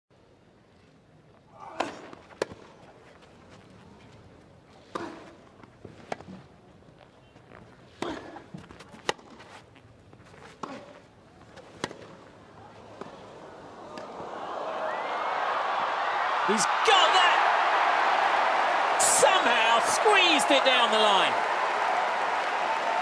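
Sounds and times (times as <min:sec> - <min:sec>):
tennis ball bouncing: 0:08.0 - 0:09.4, 0:11.6 - 0:12.2.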